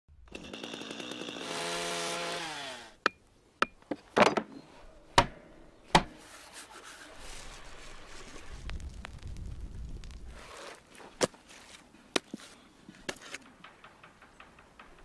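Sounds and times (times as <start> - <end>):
chainsaw running at high speed: 0.3 - 3.0.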